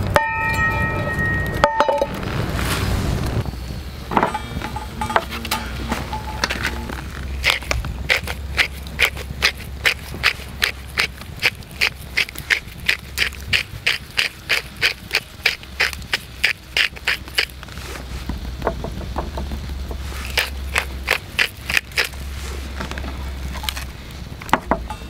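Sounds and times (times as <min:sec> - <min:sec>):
low steady hum: 0:00.0 - 0:25.0
pepper mill grinding: 0:06.2 - 0:17.6, 0:20.2 - 0:22.2.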